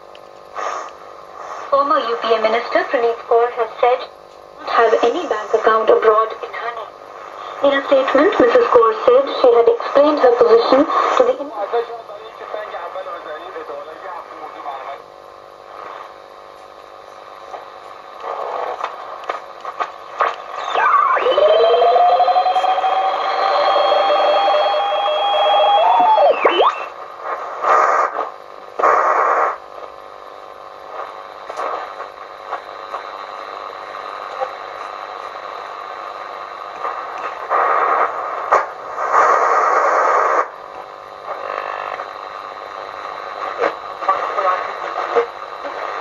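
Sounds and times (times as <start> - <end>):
radio receiver static: 0.0 - 46.0
bursts of radio noise: 17.2 - 29.8, 30.6 - 46.0
whistling radio tones: 20.4 - 28.2.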